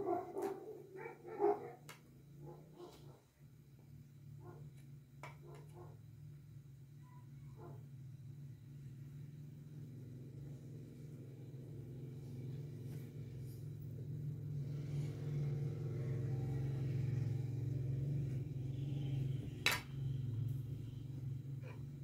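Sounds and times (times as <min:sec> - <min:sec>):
low hum: 0:06.1 - 0:22.0.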